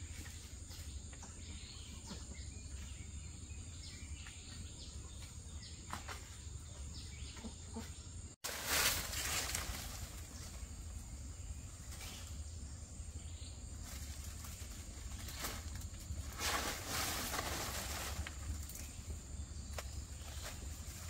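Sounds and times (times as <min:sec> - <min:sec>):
rustling noise: 0:08.4 - 0:10.7, 0:13.8 - 0:19.0.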